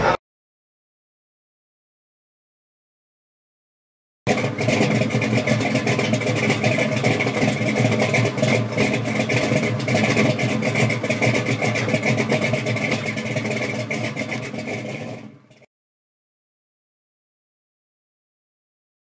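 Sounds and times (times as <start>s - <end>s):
car engine running: 4.3s - 15.7s.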